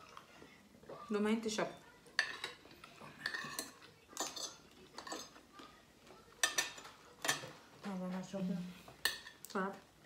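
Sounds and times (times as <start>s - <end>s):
cutlery clinking on ceramic plates: 2.1s - 5.4s, 6.2s - 7.7s, 8.9s - 9.6s.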